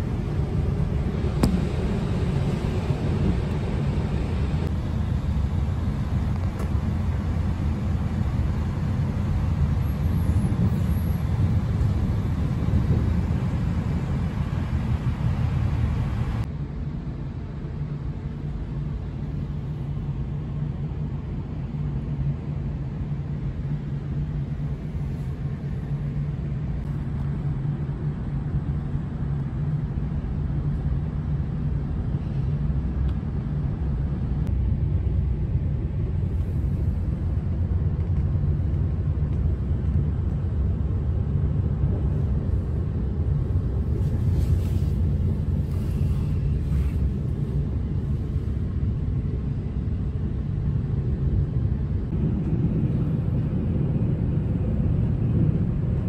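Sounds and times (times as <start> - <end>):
train rumbling inside carriage: 0.0 - 56.0.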